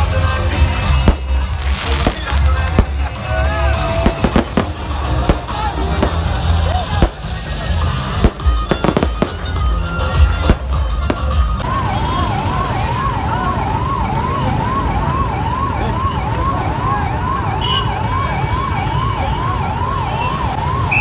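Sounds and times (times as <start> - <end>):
low traffic rumble: 0.0 - 21.0
firework bangs: 1.0 - 11.6
ambulance siren: 1.0 - 21.0.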